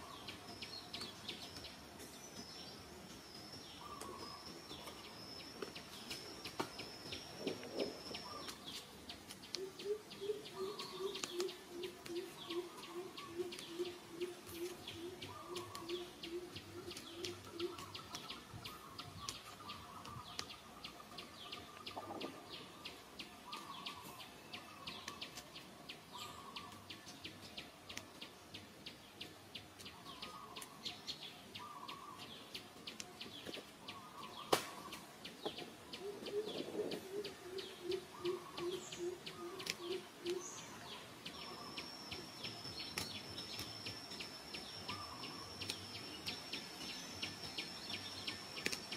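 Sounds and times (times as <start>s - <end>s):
low repeated bird call: 0.0s - 48.9s.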